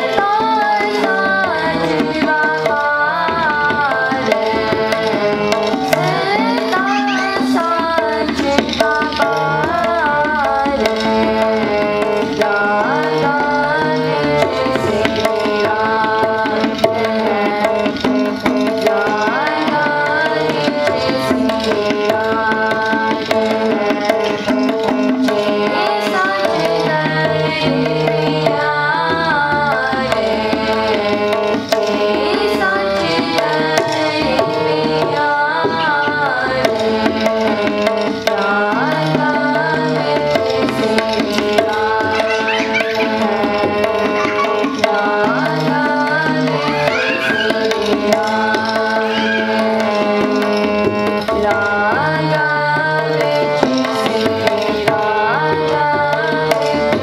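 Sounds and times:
girls singing a hymn: 0.0s - 17.6s, 38.4s - 50.8s
harmonium tones: 0.0s - 57.0s
tabla rhythm: 0.0s - 57.0s.

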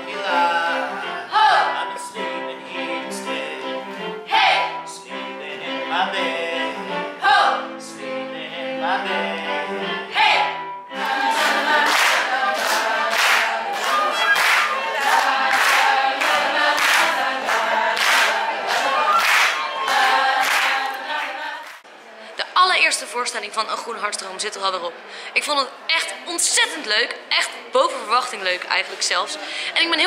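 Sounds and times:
group of voices singing: 0.0s - 21.9s
audience clapping along: 11.0s - 21.9s.

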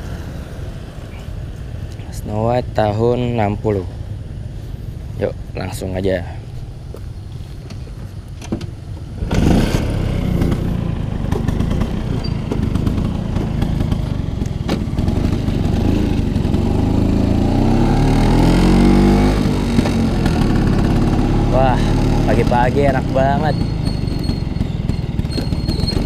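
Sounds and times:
scooter engine pulling away: 9.2s - 26.0s.

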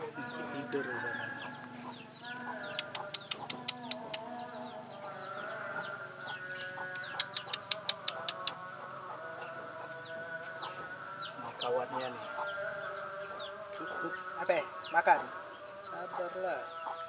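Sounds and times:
chickens and birds chirping: 0.0s - 17.0s
sharp clicks: 2.8s - 4.3s, 6.9s - 8.6s.

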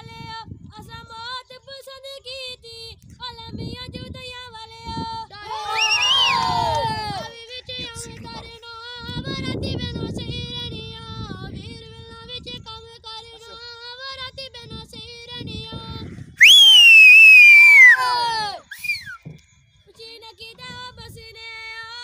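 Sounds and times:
child singing folk song: 0.0s - 5.6s, 7.2s - 16.1s, 19.9s - 22.0s.

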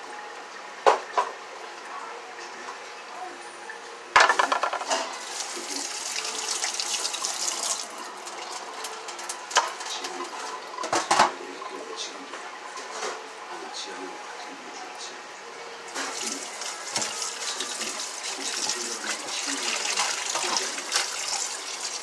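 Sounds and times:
tap water splashing into sink: 16.0s - 22.0s.

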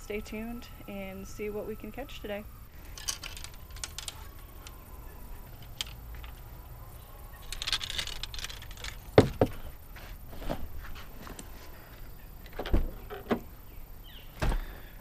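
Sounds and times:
light rustling and small clicks: 2.9s - 4.8s.

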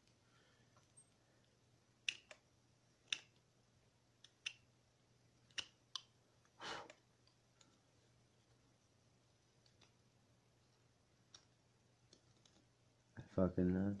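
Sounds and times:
knife whittling wood clicks: 5.5s - 6.1s.

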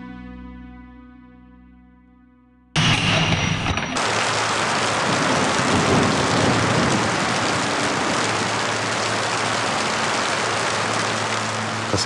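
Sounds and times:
rain pouring down: 4.0s - 12.0s.

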